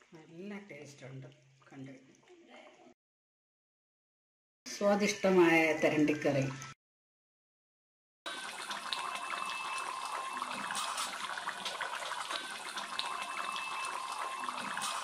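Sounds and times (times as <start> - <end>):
curry bubbling and popping: 8.3 - 15.0.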